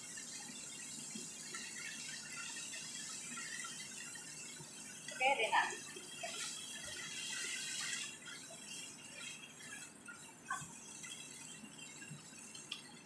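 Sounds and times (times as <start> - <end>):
broth pouring into pan: 0.0 - 13.0
chicken sizzling in a frying pan: 0.0 - 13.0.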